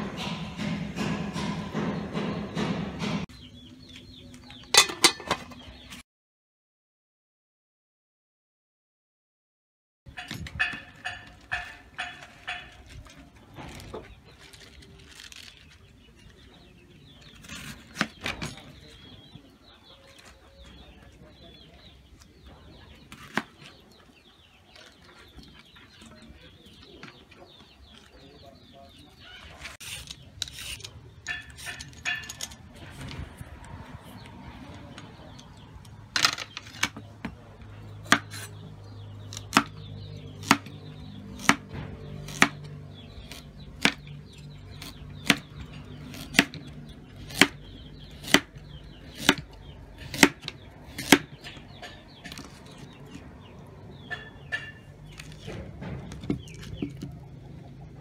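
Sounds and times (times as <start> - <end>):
vegetables being cut by hand: 17.0 - 18.6, 29.5 - 32.3, 38.0 - 53.5
knife chopping on wooden board: 38.0 - 38.6, 39.3 - 42.6, 44.7 - 51.6.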